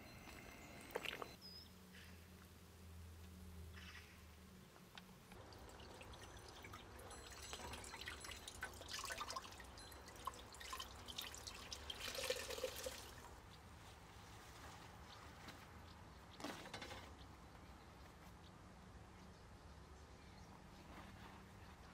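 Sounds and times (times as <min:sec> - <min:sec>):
water dripping into steel pot: 0:05.3 - 0:13.4.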